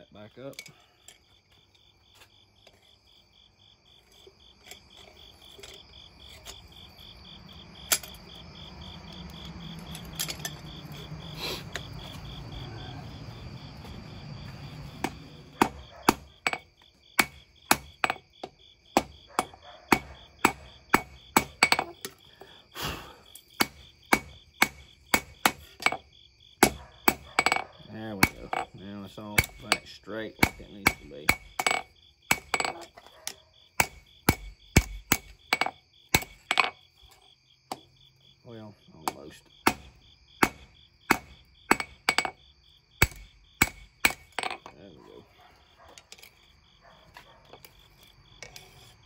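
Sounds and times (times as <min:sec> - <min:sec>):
hammer striking steel on anvil: 0:15.0 - 0:16.6, 0:19.0 - 0:21.9, 0:23.6 - 0:26.0, 0:26.6 - 0:32.9, 0:33.8 - 0:36.7, 0:39.1 - 0:42.4, 0:43.0 - 0:44.6.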